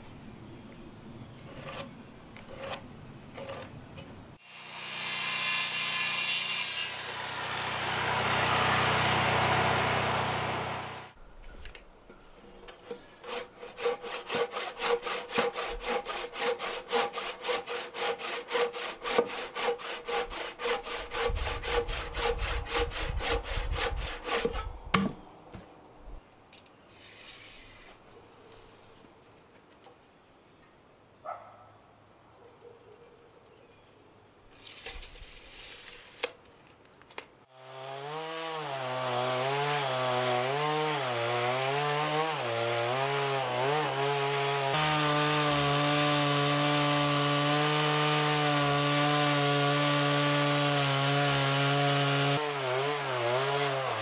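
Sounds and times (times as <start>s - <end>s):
hand saw cutting wood: 1.5s - 2.8s, 3.4s - 3.7s, 4.4s - 11.2s, 12.8s - 24.7s, 37.5s - 54.0s
power saw cutting timber: 2.5s - 2.8s, 4.4s - 11.2s, 13.2s - 24.7s, 37.5s - 54.0s.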